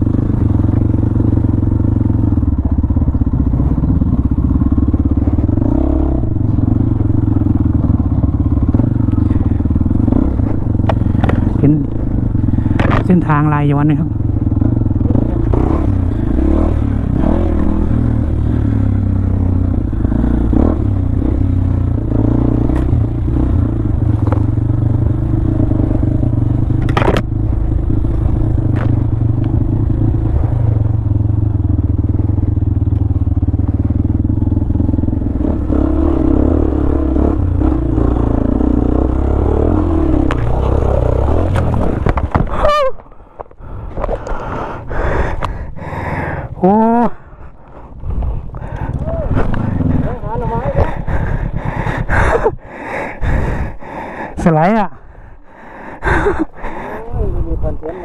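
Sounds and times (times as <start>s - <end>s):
motorcycle engine running: 0.0s - 58.0s
motorcycle knocks and scrapes: 7.6s - 13.2s, 24.0s - 24.7s, 26.7s - 27.4s, 40.2s - 44.3s.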